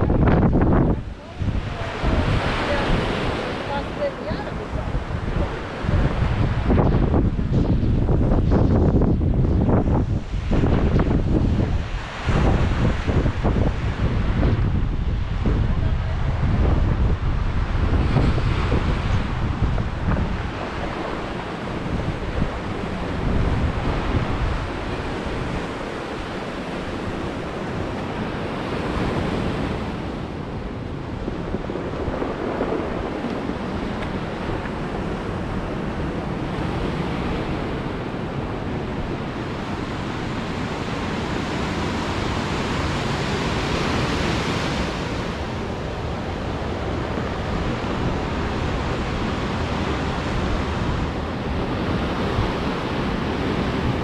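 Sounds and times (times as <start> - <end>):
wind buffeting microphone: 0.0 - 54.0
surf breaking over rocks and pebbles: 30.0 - 36.3.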